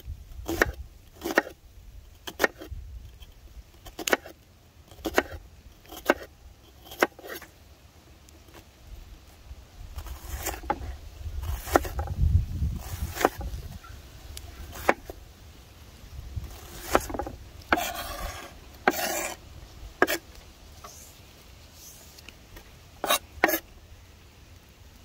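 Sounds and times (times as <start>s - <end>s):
knife scraping across wood: 0.4s - 1.6s, 2.2s - 7.6s, 10.0s - 13.8s, 14.4s - 15.2s, 16.4s - 19.4s, 20.0s - 23.7s.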